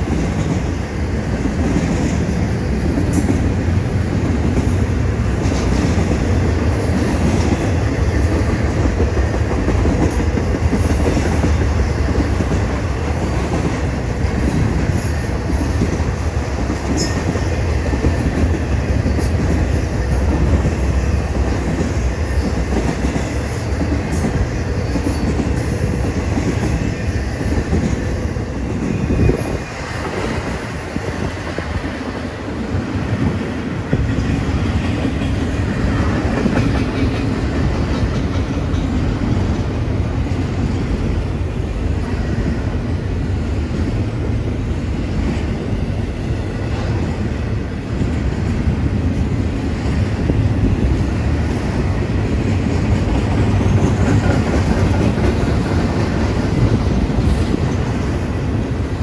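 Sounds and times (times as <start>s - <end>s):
freight train cars rolling past: 0.0s - 59.0s.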